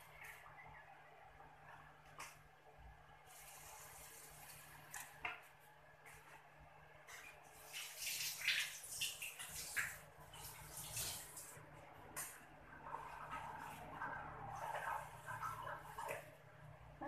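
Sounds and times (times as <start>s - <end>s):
water running and splashing: 3.3s - 5.3s, 7.1s - 16.7s.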